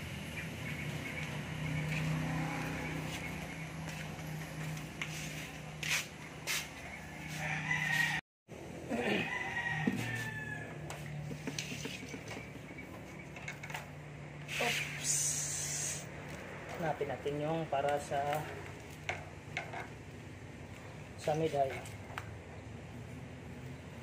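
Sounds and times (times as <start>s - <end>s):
rooster crowing: 6.9s - 8.2s, 8.9s - 11.0s.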